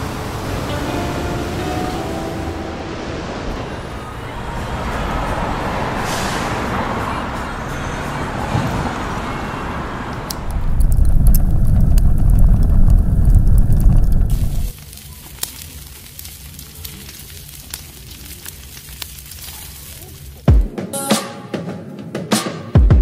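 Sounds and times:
surf washing: 0.0s - 6.9s
city traffic: 0.0s - 14.8s
charcoal fire rumbling and crackling: 10.0s - 20.6s.

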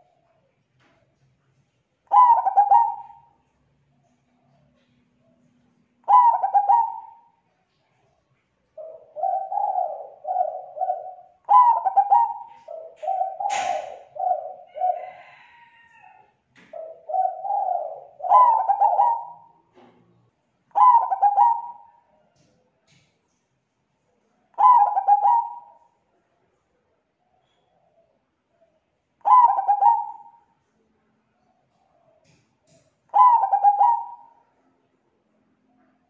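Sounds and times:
dove cooing: 2.0s - 3.5s, 4.1s - 7.4s, 8.7s - 20.0s, 20.7s - 22.2s, 24.5s - 26.0s, 27.2s - 30.5s, 31.5s - 34.6s
short sharp click: 13.5s - 13.9s.

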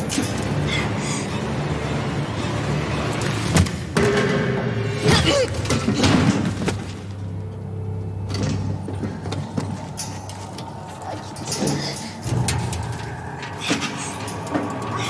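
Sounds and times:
low machinery hum: 0.0s - 15.0s
knocks and clanks: 3.2s - 7.2s, 8.2s - 15.0s.

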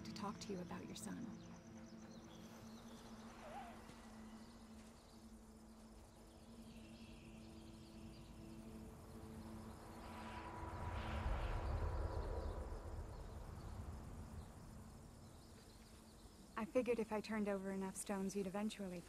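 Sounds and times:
insects chirping: 0.0s - 19.0s
wind: 0.0s - 19.0s.

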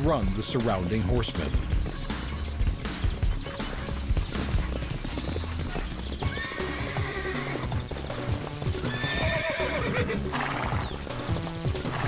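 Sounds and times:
background music: 0.0s - 12.0s
galloping hoofbeats: 0.0s - 12.0s
horse whinnying: 5.2s - 7.9s, 8.6s - 11.1s, 11.8s - 12.0s.

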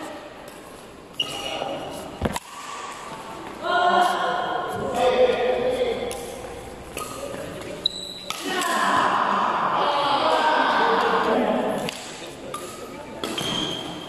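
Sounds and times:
racket smacking shuttlecock: 0.4s - 3.3s, 6.0s - 9.0s.

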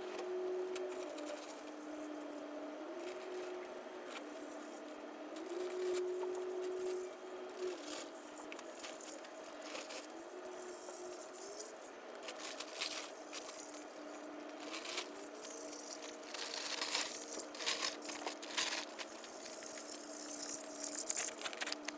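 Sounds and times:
snow shovel scraping: 14.6s - 20.6s.

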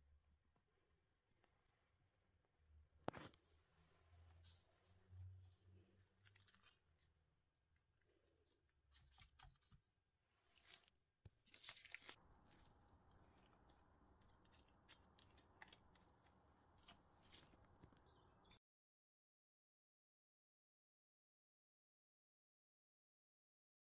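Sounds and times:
gloved hands rustling bananas: 10.5s - 18.6s.

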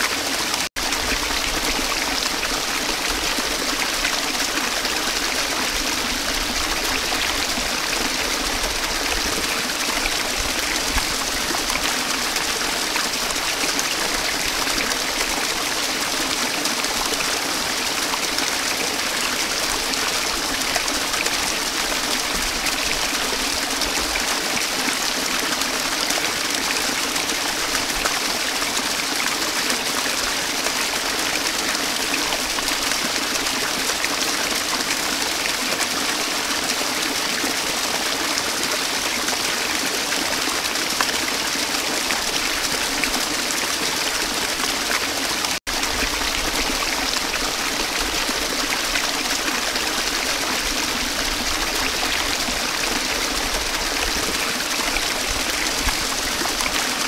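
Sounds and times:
waterfall rushing and splashing: 0.0s - 57.0s.

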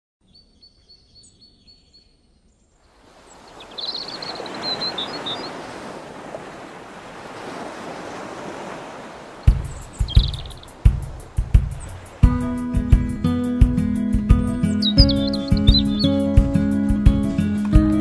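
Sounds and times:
bird chirps: 0.2s - 5.7s, 9.4s - 11.0s, 14.6s - 16.4s
rush of outdoor noise: 2.8s - 18.0s.

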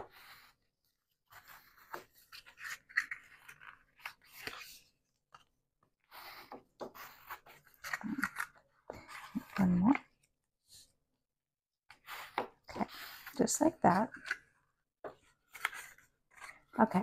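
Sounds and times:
paper rustling and scraping: 1.2s - 5.4s, 15.3s - 17.0s.

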